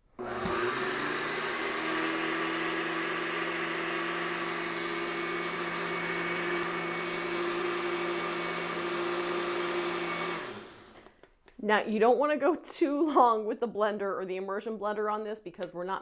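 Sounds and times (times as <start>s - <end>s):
blender motor whirring: 0.2s - 11.2s.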